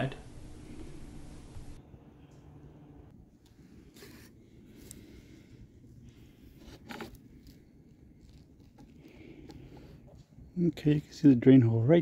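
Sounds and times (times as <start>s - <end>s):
faint rubbing and scraping: 3.6s - 11.6s.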